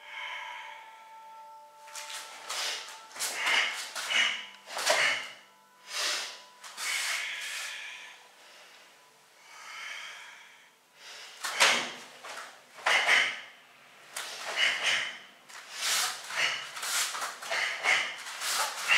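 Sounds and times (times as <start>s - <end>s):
sharp breaths through nose: 2.4s - 8.9s, 12.8s - 13.4s, 14.2s - 18.9s
swish of clothing: 15.6s - 18.9s.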